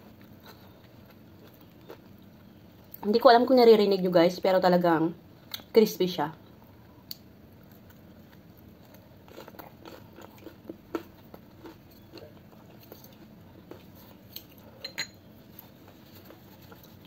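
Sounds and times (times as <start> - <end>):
chewing crispy dumpling crunches: 0.0 - 3.0, 7.1 - 14.8.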